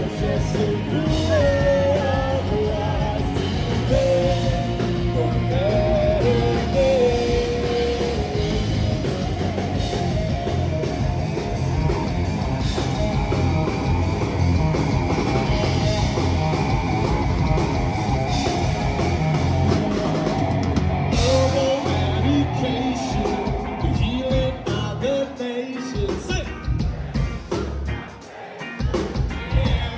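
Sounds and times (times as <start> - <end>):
person singing: 0.0 - 8.8, 21.1 - 26.2
bass guitar: 0.0 - 29.9
distorted electric guitars: 0.0 - 29.9
drum kit: 0.0 - 29.9.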